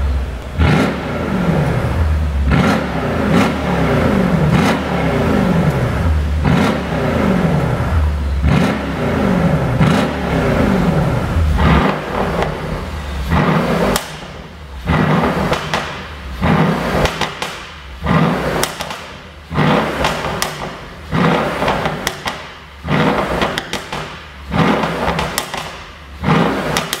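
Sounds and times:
car engine revving: 0:00.0 - 0:27.0
exhaust pops and crackles: 0:11.6 - 0:27.0.

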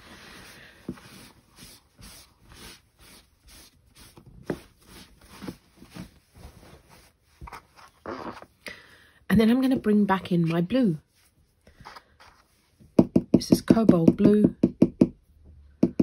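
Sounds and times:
faint scratchy brush strokes: 0:00.0 - 0:08.0, 0:10.2 - 0:12.8.

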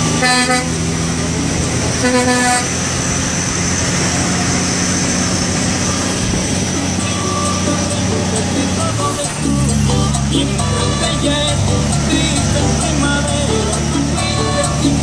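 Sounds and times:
truck horn blasts: 0:00.0 - 0:03.2, 0:04.0 - 0:08.7
truck engine drone: 0:00.0 - 0:15.0.

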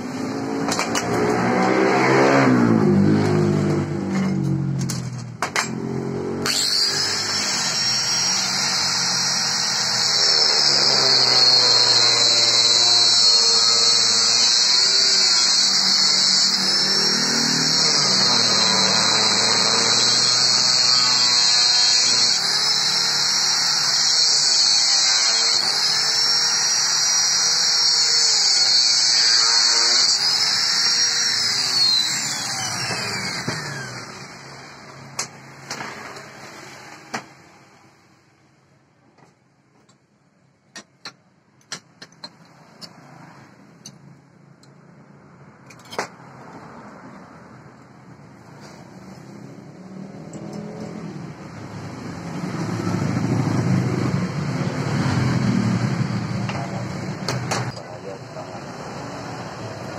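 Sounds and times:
angle grinder cutting steel: 0:00.0 - 0:03.9, 0:05.5 - 0:37.4.

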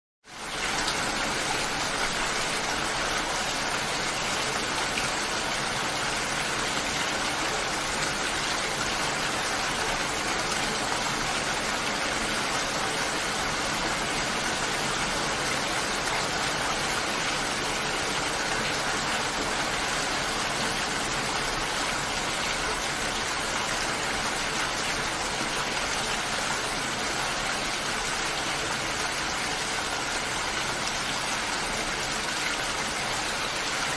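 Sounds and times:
steady rain hiss: 0:00.3 - 0:33.9.

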